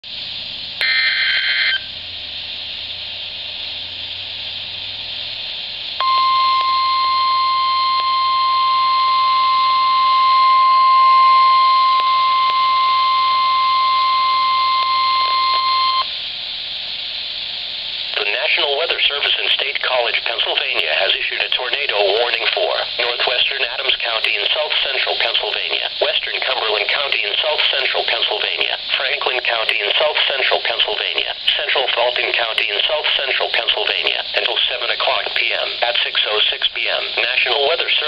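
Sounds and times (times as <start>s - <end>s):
steady warning alarm tone: 0.8s - 2.0s, 6.0s - 16.2s
radio hiss: 10.9s - 38.0s.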